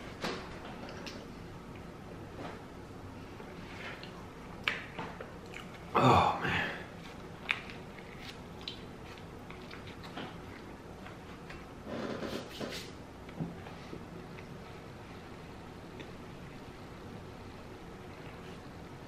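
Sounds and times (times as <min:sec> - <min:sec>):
man chewing sandwich: 0:03.4 - 0:06.0, 0:06.6 - 0:11.8, 0:13.2 - 0:19.0.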